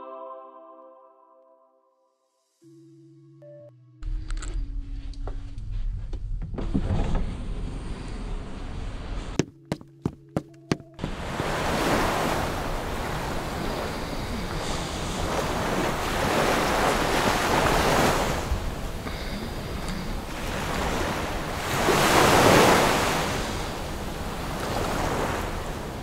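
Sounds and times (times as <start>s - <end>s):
wind: 4.0s - 26.0s
ocean waves: 10.6s - 26.0s.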